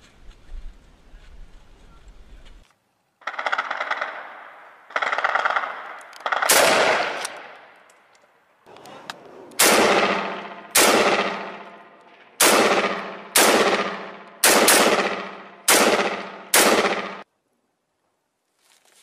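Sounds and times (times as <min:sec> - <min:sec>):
gunshots with echo: 0:03.2 - 0:07.7, 0:09.6 - 0:17.2.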